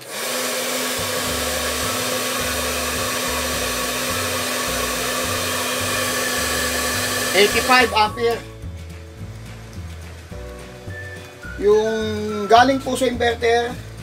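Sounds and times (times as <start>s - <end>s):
hair dryer blowing air: 0.0s - 8.4s
steady electrical hum: 0.8s - 11.4s.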